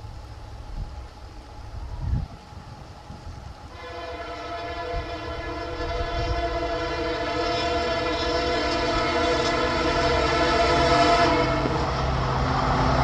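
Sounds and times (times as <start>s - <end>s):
diesel engine and train rumble: 0.0s - 13.0s
locomotive horn blast: 3.7s - 12.1s.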